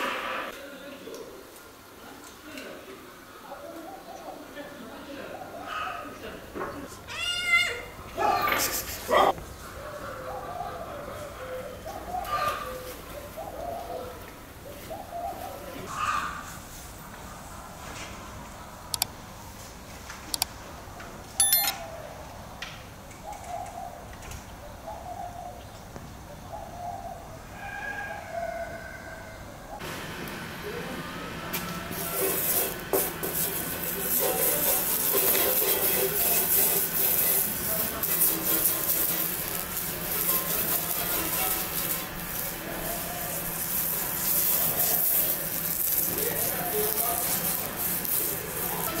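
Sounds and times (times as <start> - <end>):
fat sizzling on hot griddle: 31.6 - 49.0
steady hiss: 31.9 - 49.0.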